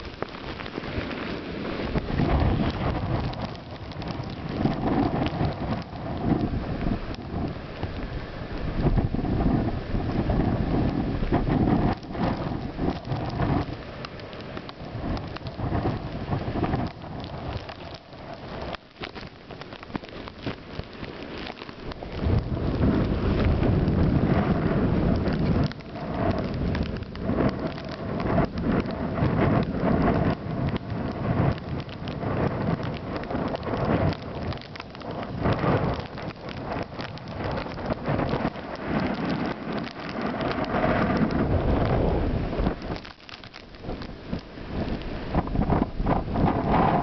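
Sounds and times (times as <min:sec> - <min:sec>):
wind buffeting microphone: 0:00.0 - 0:47.0.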